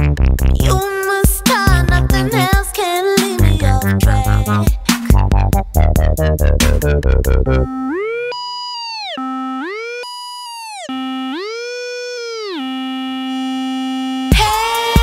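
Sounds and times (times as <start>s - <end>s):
electronic dance beat: 0.0s - 15.0s
synthesizer tone sliding in pitch: 7.4s - 14.3s.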